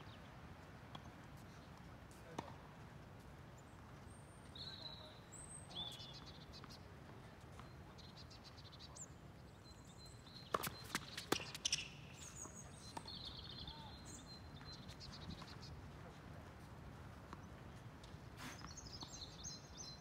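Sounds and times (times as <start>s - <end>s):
tennis balls hit and bouncing: 2.1s - 2.6s, 10.3s - 13.8s
birds chirping: 7.6s - 15.8s.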